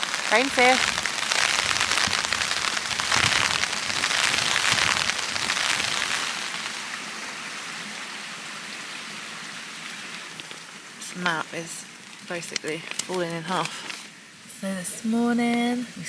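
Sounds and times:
rain pattering on a tent: 0.0s - 16.0s.

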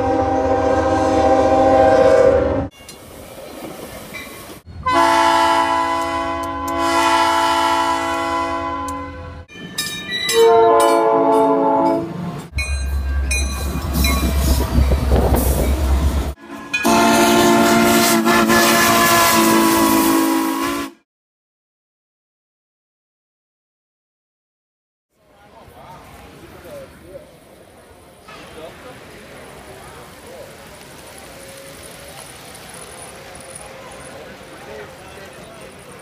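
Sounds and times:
locomotive air horn blasts: 0.0s - 2.7s, 4.8s - 9.5s, 10.3s - 12.1s, 16.4s - 21.0s
locomotive rumbling past: 0.0s - 20.8s, 26.0s - 36.0s.

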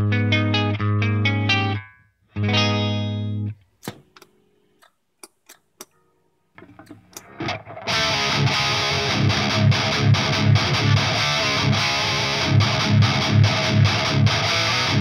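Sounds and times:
distorted electric guitar riffing: 7.2s - 15.0s.

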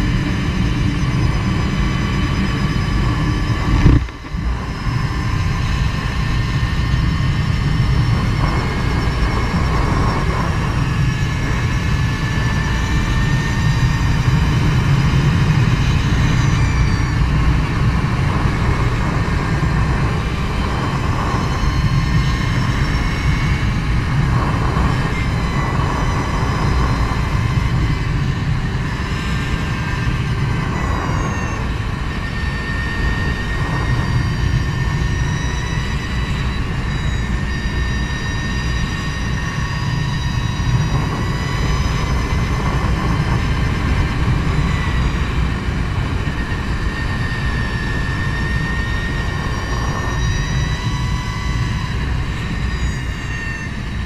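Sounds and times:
road rumble: 0.0s - 32.4s
electric motorcycle drive whining: 0.0s - 54.0s
heavy wind noise: 0.0s - 54.0s.

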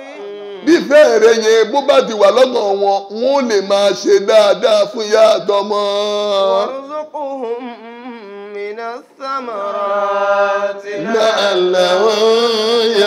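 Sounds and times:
man chanting unaccompanied: 0.7s - 7.5s, 10.7s - 13.0s.

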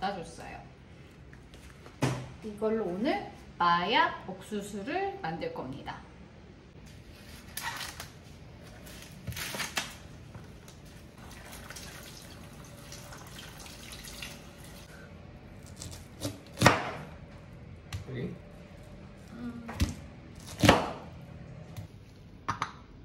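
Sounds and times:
kitchen tap running: 11.2s - 14.9s.

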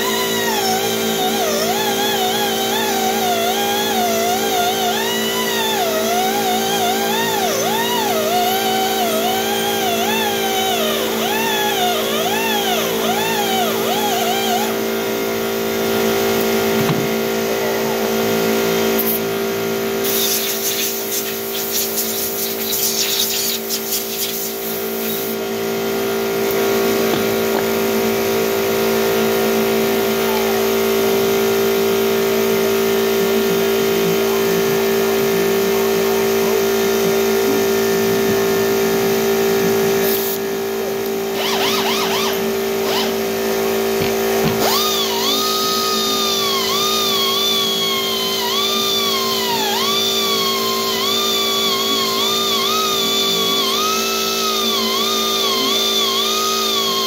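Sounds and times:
compressed air blow gun hissing: 20.0s - 25.4s.

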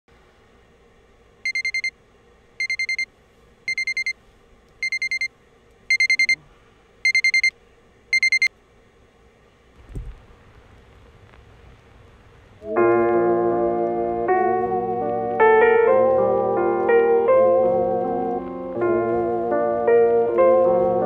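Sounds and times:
alarm clock beeping: 1.5s - 1.9s, 2.6s - 3.1s, 3.7s - 4.1s, 4.8s - 5.3s, 5.9s - 6.4s, 7.1s - 7.5s, 8.1s - 8.5s
low thump: 9.8s - 11.5s.

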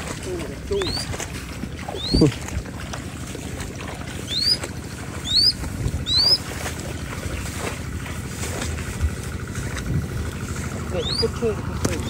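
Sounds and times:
wind rumbling on microphone: 0.0s - 12.0s
rising whistled bird calls: 0.8s - 1.1s, 1.9s - 2.4s, 4.2s - 6.5s, 11.0s - 11.4s.

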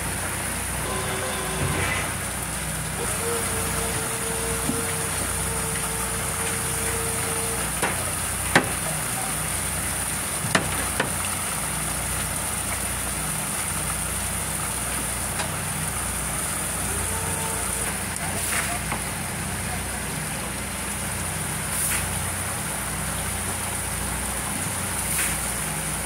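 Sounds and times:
machinery hum with high whine: 0.0s - 10.2s, 14.2s - 26.0s
low steady tone: 0.8s - 7.6s.

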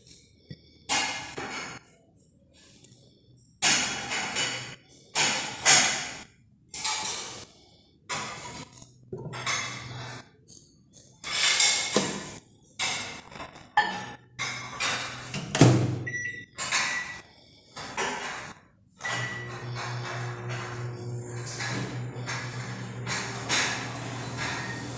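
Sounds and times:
microwave keypad beeps: 16.0s - 17.2s.

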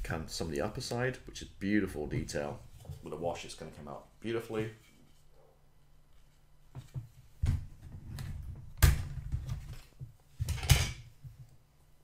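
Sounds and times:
plastic knocks and clatters: 6.7s - 11.5s.

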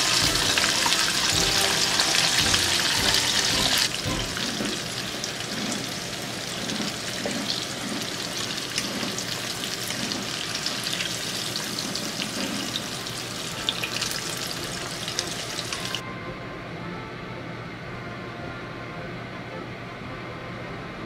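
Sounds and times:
steady hum: 0.0s - 10.2s
deep-frying sizzle: 0.0s - 16.0s.

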